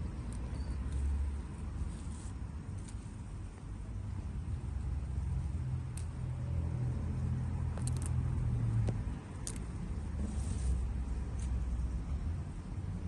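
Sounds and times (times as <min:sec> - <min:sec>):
low engine-like hum: 0:00.0 - 0:13.0
leaves rustling: 0:10.2 - 0:11.6.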